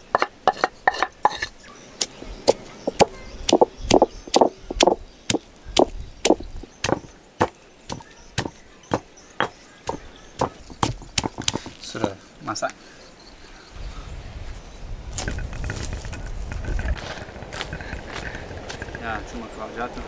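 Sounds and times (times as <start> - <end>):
knife chopping on wooden board: 5.8 - 11.8.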